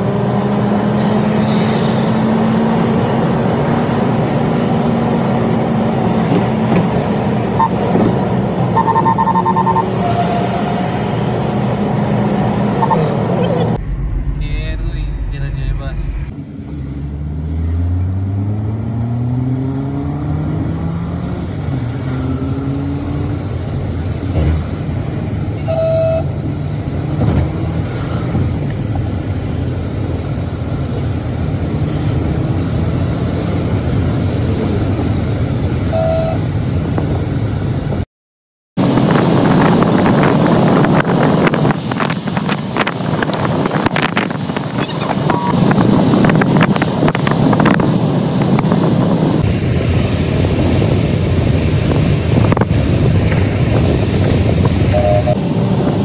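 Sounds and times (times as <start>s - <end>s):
wind and road rush: 0.0s - 38.1s, 38.8s - 56.0s
car horn beeps: 8.7s - 10.8s, 12.8s - 13.2s, 25.6s - 26.4s, 35.9s - 36.5s, 54.9s - 55.4s
car engine accelerating: 11.1s - 25.4s.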